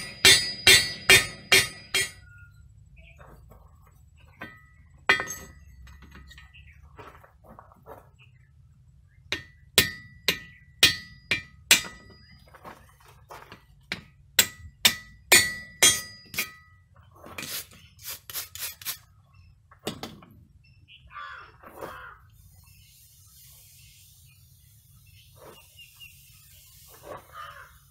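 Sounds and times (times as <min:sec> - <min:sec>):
duller hammer blows: 0:00.0 - 0:02.3
hammer clanking on metal: 0:00.0 - 0:02.3, 0:04.4 - 0:06.5, 0:09.3 - 0:12.4, 0:13.9 - 0:16.8.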